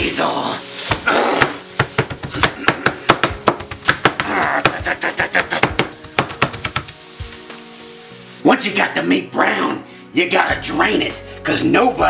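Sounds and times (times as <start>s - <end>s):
knife chopping on cutting board: 0.9s - 7.0s.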